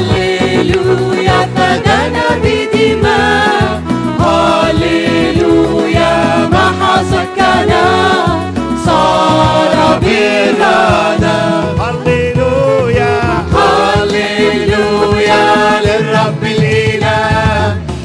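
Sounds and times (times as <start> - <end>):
woman singing with vibrato: 0.0 - 3.8, 13.6 - 16.2
instrumental accompaniment with bass: 0.0 - 18.0.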